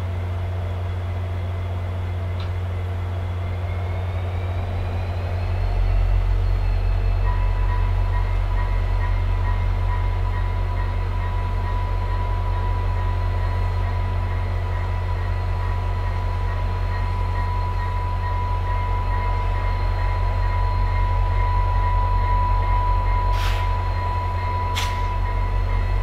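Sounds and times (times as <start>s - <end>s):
diesel locomotive idling: 0.0s - 26.0s.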